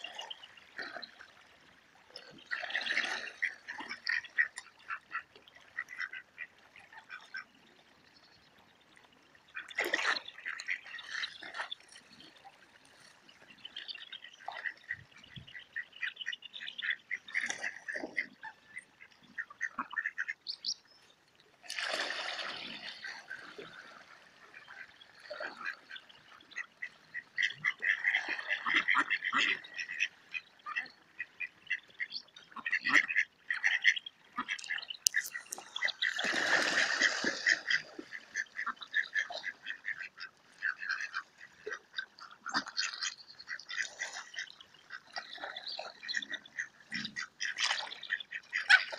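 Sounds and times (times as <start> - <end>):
ducks quacking: 2.3 - 7.5, 14.3 - 20.5, 22.6 - 48.9.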